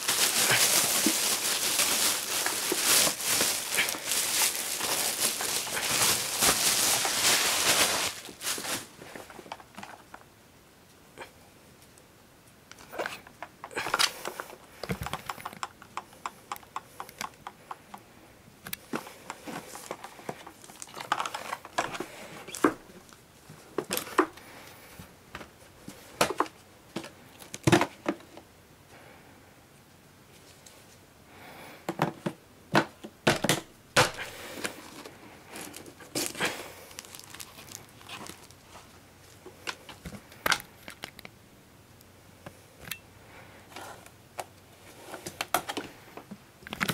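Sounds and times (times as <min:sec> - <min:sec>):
plastic packaging crinkling: 0:00.0 - 0:10.2, 0:12.9 - 0:16.0, 0:18.8 - 0:23.2, 0:33.4 - 0:41.3
hard plastic parts clicking: 0:12.7 - 0:18.0, 0:18.6 - 0:22.8.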